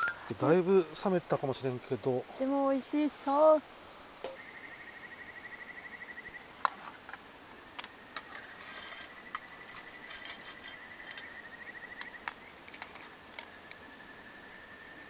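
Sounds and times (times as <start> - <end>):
insect trilling: 0.0 - 1.0, 8.2 - 14.0.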